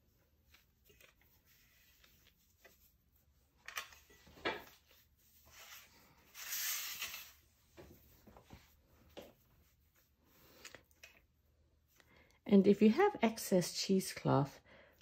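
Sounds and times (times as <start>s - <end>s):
cloth rustling: 0.0s - 10.6s.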